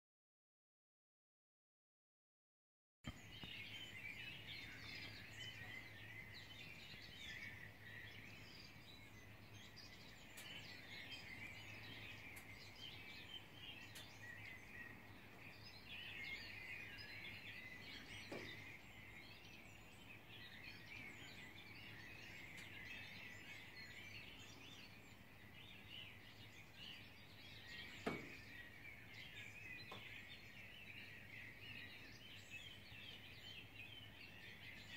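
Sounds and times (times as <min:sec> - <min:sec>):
distant birds chirping: 0:03.1 - 0:34.9.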